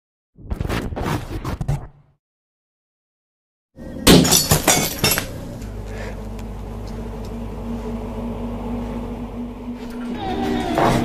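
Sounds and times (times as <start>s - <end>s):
steady low hum: 3.8s - 11.0s
glass shattering: 4.1s - 5.3s.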